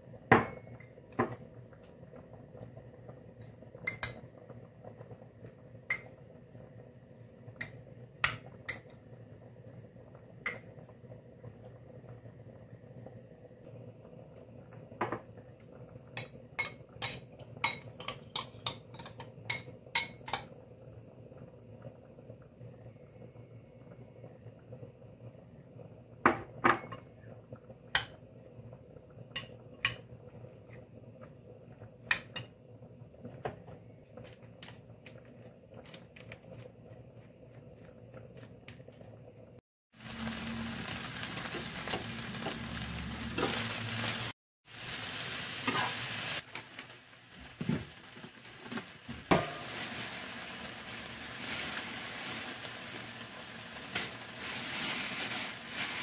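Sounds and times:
chicken sizzling in frying pan: 39.9s - 56.0s.

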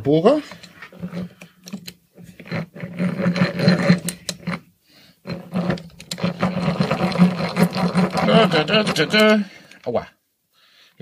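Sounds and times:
hand drill whirring into wood: 2.4s - 4.6s, 5.2s - 9.8s.

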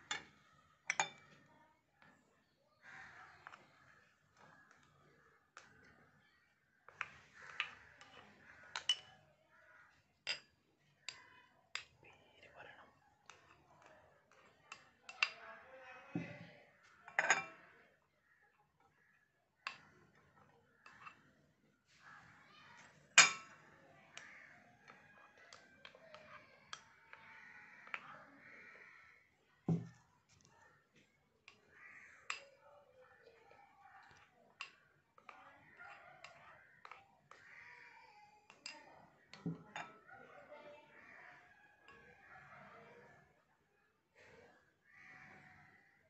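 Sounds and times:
spoon clinking against bowls: 0.0s - 1.4s, 6.9s - 9.3s, 17.1s - 17.8s, 23.2s - 28.1s, 34.0s - 37.5s
spoon knocking against bowl: 0.9s - 1.3s, 23.2s - 28.1s, 38.5s - 40.1s.

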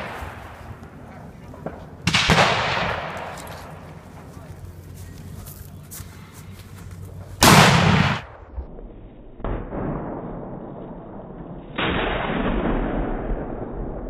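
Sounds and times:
rifle shot: 0.0s - 0.9s, 1.6s - 3.9s, 7.4s - 8.8s, 9.4s - 14.0s
slowed-down muffled boom: 7.4s - 14.0s.

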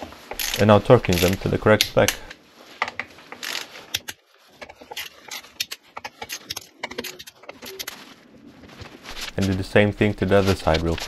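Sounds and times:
ratcheting torque wrench clicks: 0.3s - 0.6s.

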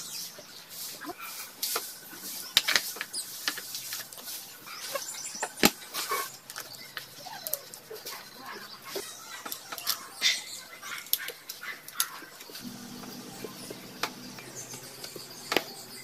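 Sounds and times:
faint animal whines: 7.0s - 9.4s.

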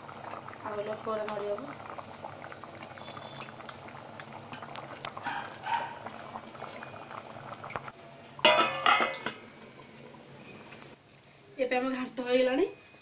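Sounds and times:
curry simmering and bubbling in a pot: 0.0s - 13.0s
metal lid clanking against pot: 8.4s - 9.5s.

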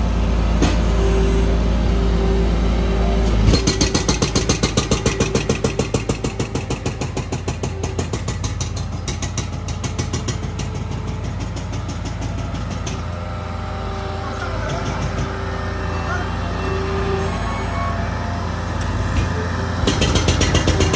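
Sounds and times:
diesel engine running: 0.0s - 20.9s.

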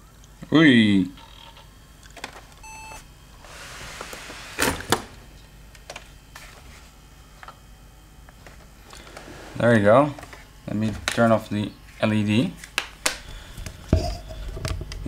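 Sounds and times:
short electronic beep: 2.6s - 3.0s.

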